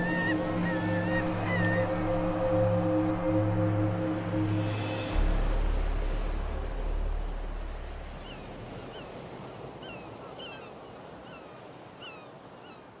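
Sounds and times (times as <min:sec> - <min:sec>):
low musical drone: 0:00.0 - 0:08.7
sea surf washing: 0:00.0 - 0:12.6.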